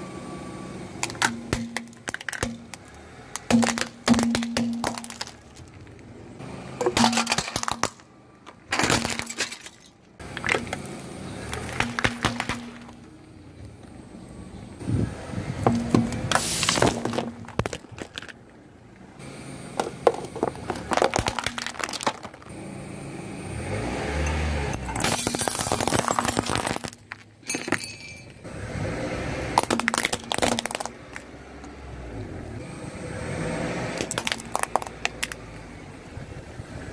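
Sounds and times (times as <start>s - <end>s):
tyre crushing objects: 1.0s - 6.0s, 6.8s - 13.1s, 15.6s - 18.4s, 19.8s - 22.5s, 25.0s - 27.3s, 29.6s - 31.2s.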